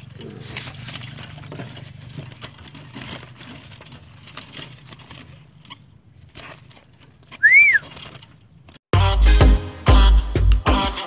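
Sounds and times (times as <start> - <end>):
faint rustling: 0.0 - 8.8
rising and falling whistle: 7.4 - 7.8.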